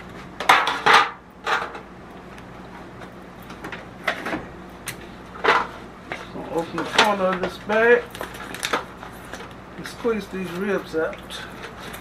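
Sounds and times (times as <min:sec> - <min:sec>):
plastic bag rustling: 0:06.6 - 0:10.7
foil pan crinkling: 0:06.7 - 0:10.8.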